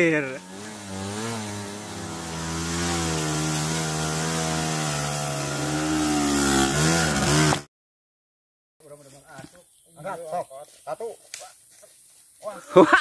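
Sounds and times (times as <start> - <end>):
small engine revving high: 0.2 - 7.7.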